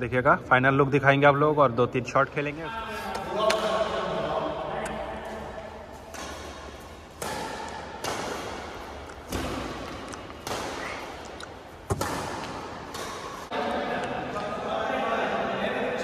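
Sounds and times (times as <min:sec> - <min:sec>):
rackets hitting shuttlecock: 0:04.8 - 0:14.5.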